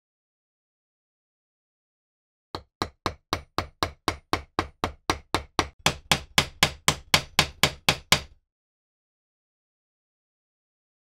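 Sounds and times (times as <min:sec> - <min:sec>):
hammer tapping on metal pin: 0:02.6 - 0:08.3.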